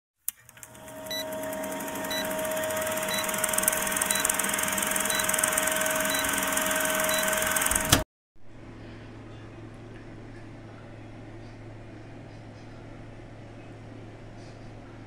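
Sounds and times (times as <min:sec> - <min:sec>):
film projector clattering: 0:00.3 - 0:08.0.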